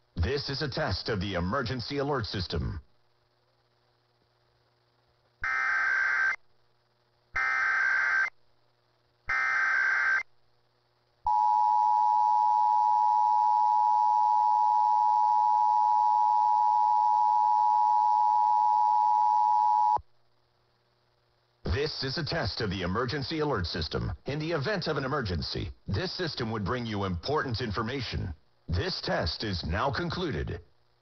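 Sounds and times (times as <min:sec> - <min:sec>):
screeching data bursts: 0:05.4 - 0:06.4, 0:07.4 - 0:08.4, 0:09.3 - 0:10.3.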